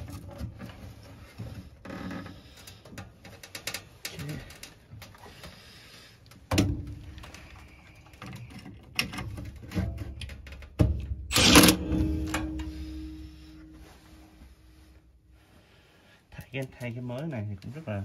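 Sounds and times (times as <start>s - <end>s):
clicks and rattles of handling: 2.6s - 5.6s, 6.2s - 12.8s
cordless drill driving screws: 11.3s - 11.8s.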